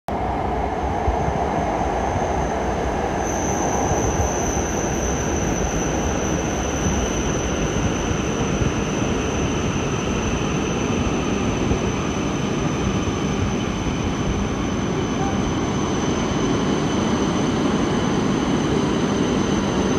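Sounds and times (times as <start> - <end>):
train running steadily: 0.1 - 19.9
thin high whine: 2.1 - 9.2.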